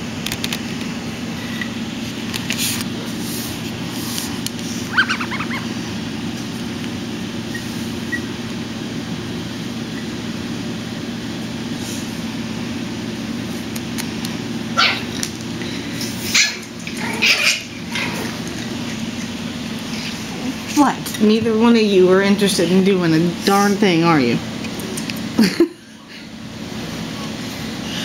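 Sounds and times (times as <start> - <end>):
steady low hum: 0.0 - 28.0
puppy yipping and barking: 4.9 - 5.7, 7.5 - 8.3, 14.8 - 15.1.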